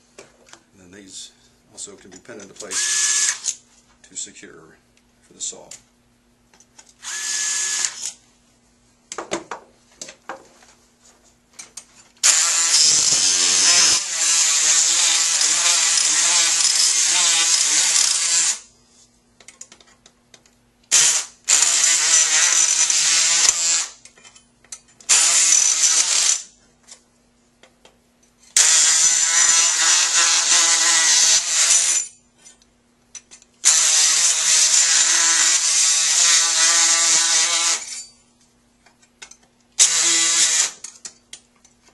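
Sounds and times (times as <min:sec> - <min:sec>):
surgical power saw cutting: 0:02.7 - 0:03.6, 0:07.0 - 0:08.2, 0:12.2 - 0:18.7, 0:20.9 - 0:24.0, 0:25.1 - 0:26.5, 0:28.6 - 0:32.0, 0:33.6 - 0:37.9, 0:39.8 - 0:40.8.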